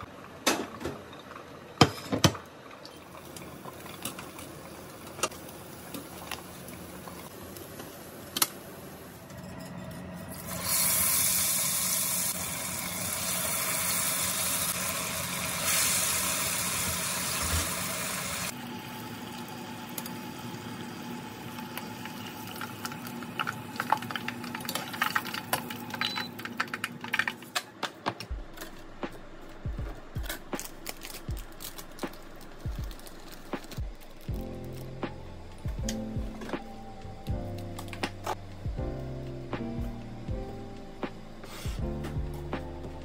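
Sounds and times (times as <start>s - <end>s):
oil popping and crackling: 3.0s - 7.7s, 21.6s - 27.6s, 30.2s - 36.6s
tofu sizzling in oil: 10.3s - 25.4s.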